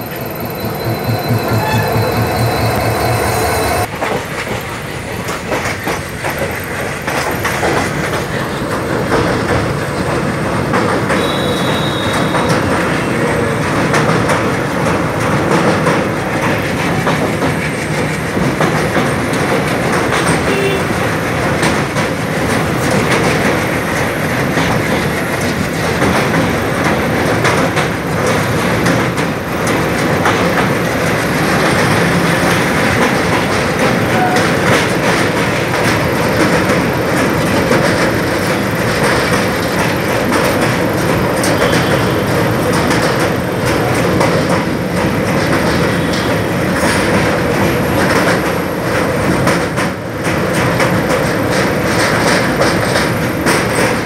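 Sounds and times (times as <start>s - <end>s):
brief high tone: 0.0s - 3.9s
train rumbling over bridge: 0.0s - 54.0s
wheels clattering over rail joints: 0.0s - 54.0s.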